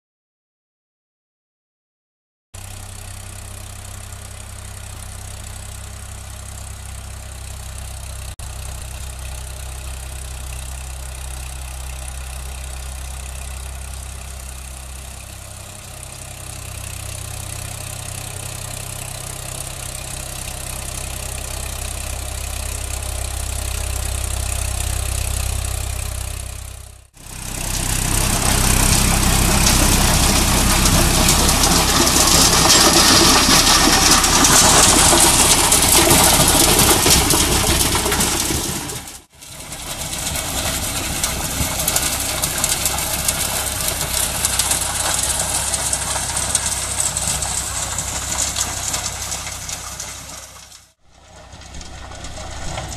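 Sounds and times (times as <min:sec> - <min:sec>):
tractor engine running: 0:02.6 - 0:52.9
rotavator blades tilling soil: 0:27.2 - 0:52.9.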